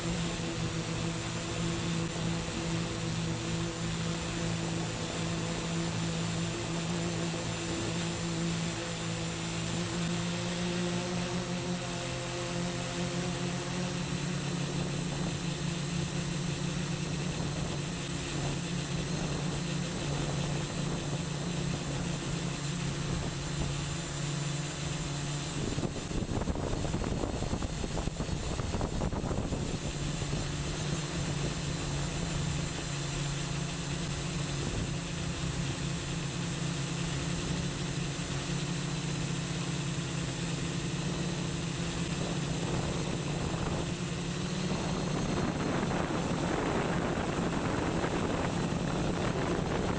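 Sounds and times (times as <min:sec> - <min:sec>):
drone propeller hum: 0:00.0 - 0:49.9
high motor whine: 0:00.0 - 0:49.9.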